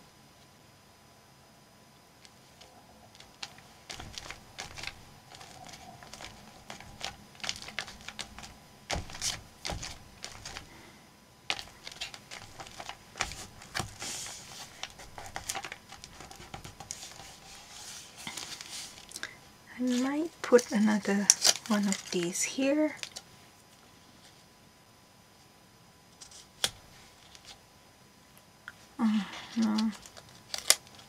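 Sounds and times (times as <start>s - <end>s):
paper rustling and scraping: 2.4s - 10.8s, 11.5s - 19.2s, 19.8s - 24.5s, 29.5s - 31.0s.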